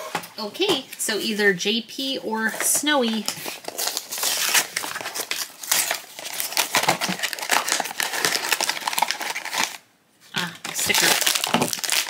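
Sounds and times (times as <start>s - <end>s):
cardboard box crinkling and scraping: 2.3s - 9.8s, 10.7s - 12.0s.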